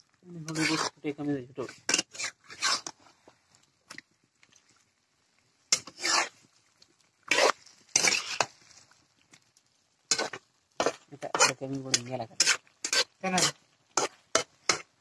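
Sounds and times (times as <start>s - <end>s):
spatula scraping in a wok: 0.0s - 3.4s, 5.6s - 9.1s, 10.0s - 15.0s.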